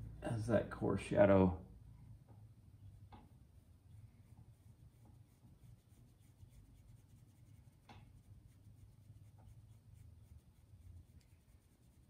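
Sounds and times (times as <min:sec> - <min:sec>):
low room hum: 0:00.0 - 0:12.0
paintbrush strokes on canvas: 0:03.6 - 0:12.0.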